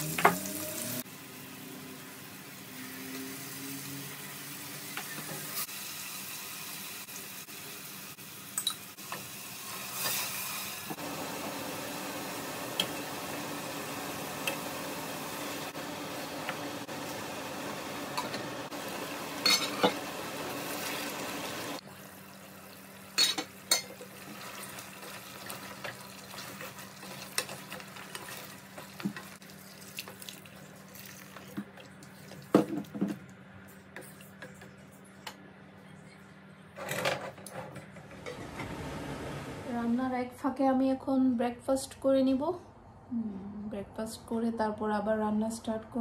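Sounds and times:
water running into pot: 8.5s - 33.0s
wooden spoon stirring in a pot: 23.8s - 33.0s.

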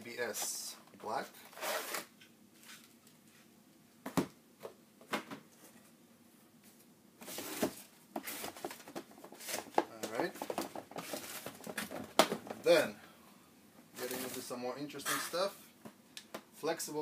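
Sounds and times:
boxes rustling and scraping: 0.1s - 3.5s, 6.6s - 13.0s, 13.8s - 15.8s.

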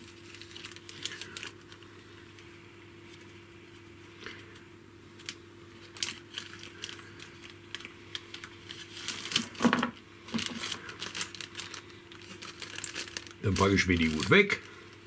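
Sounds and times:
plastic bag crinkling: 0.0s - 1.9s, 5.2s - 15.0s
faint steady hum: 0.0s - 15.0s.

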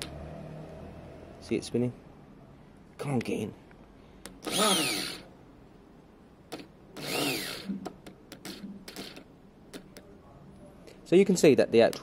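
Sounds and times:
electric starter motor whining: 4.4s - 5.3s, 7.0s - 7.7s.

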